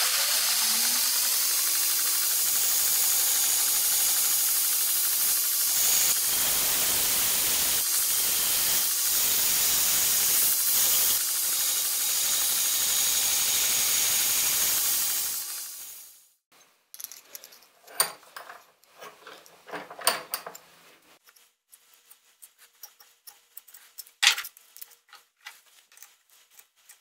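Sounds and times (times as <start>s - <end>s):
belt grinder grinding metal: 0.0s - 16.0s.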